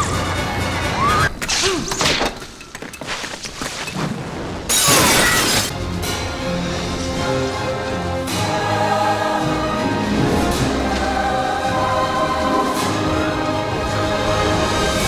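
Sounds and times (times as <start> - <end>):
orchestral score: 5.7 - 15.0.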